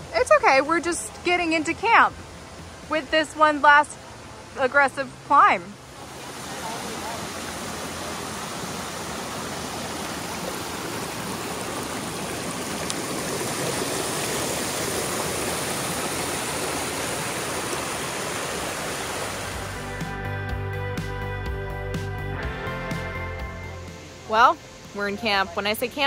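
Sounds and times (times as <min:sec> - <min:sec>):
stream rushing over boulders: 0:00.0 - 0:20.0
music with a regular beat: 0:19.6 - 0:24.0.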